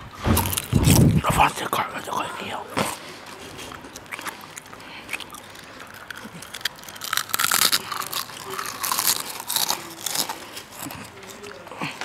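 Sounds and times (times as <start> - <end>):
potato chips crunching: 3.6 - 12.0.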